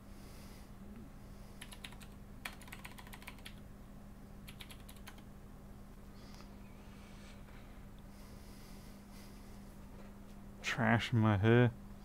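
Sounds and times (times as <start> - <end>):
steady low hum: 0.0 - 12.0
computer keyboard typing: 1.6 - 3.6, 4.4 - 5.2.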